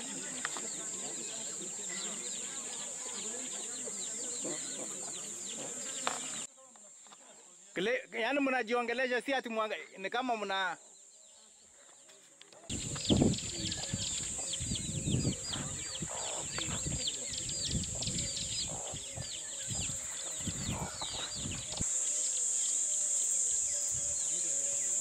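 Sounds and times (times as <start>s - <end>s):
birds chirping: 0.0s - 6.5s, 10.4s - 25.0s
high insect drone: 12.7s - 25.0s.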